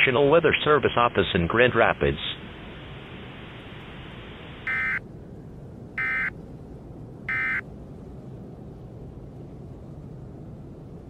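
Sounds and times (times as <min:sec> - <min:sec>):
steady hiss: 0:00.0 - 0:05.9
short electronic buzzes: 0:04.6 - 0:05.0, 0:07.3 - 0:07.6.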